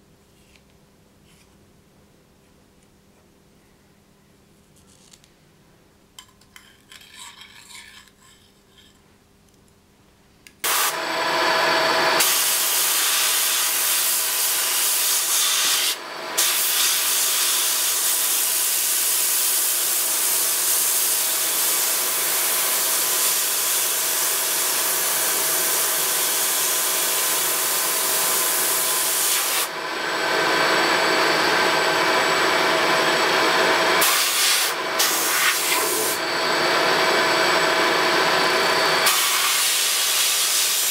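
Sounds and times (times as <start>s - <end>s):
faint handling sounds: 0.2s - 1.7s, 4.5s - 5.6s.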